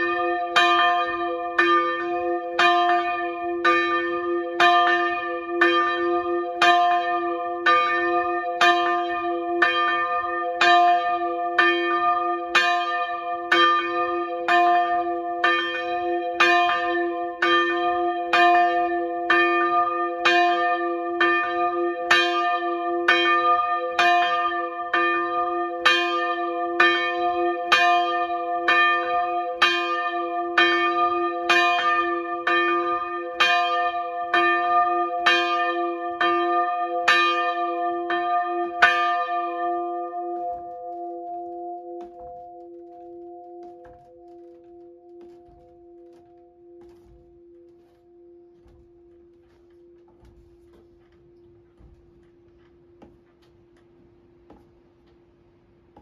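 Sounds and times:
church bell ringing: 0:00.0 - 0:56.0.

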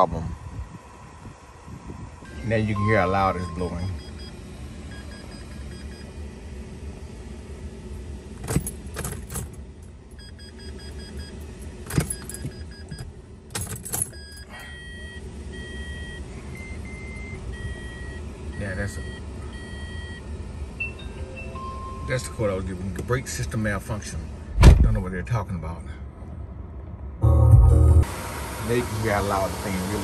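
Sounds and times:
cooling fan blowing: 0:00.0 - 0:26.9, 0:27.9 - 0:30.0
dashboard warning beeps: 0:02.2 - 0:06.2, 0:10.2 - 0:22.7.

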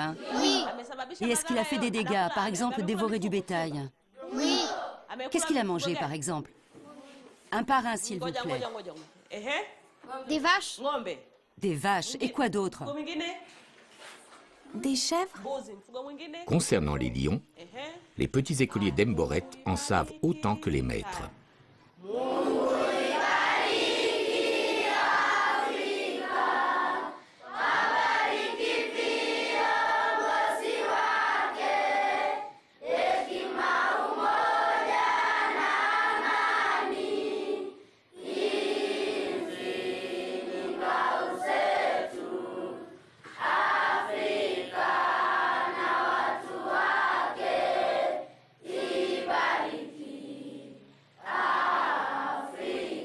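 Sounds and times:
children singing in chorus: 0:22.0 - 0:53.0.

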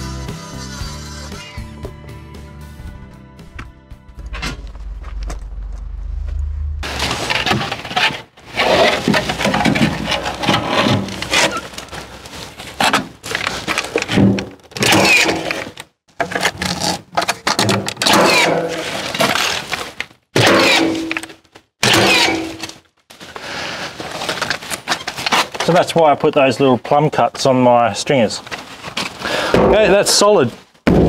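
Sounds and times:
wood knocking and scraping: 0:06.8 - 0:18.0.

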